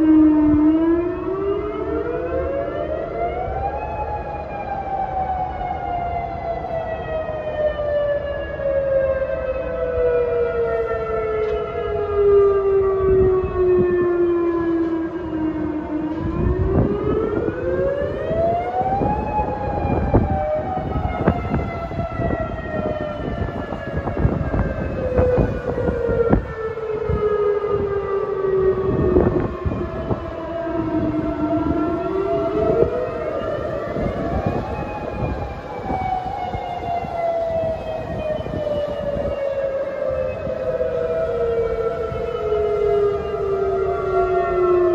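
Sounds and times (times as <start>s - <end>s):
warning sirens wailing: 0.0s - 44.9s.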